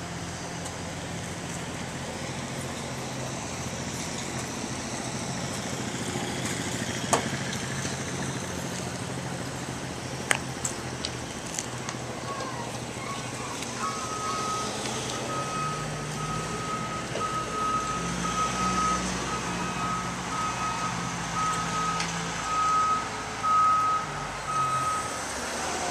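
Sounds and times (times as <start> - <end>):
vehicle engine running: 0.0 - 24.8
reversing alarm beeping: 13.8 - 25.2.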